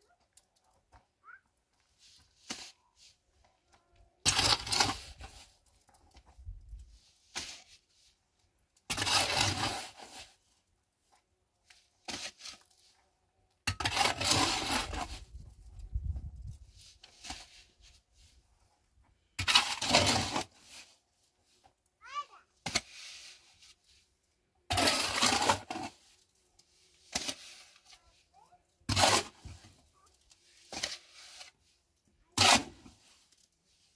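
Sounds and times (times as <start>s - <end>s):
stones and soil crunching: 4.2s - 10.4s, 11.0s - 21.9s.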